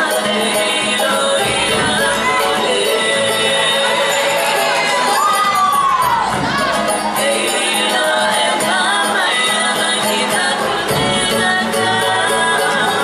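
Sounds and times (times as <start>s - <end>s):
group singing: 0.0s - 13.0s
drum ensemble beating: 1.2s - 8.0s.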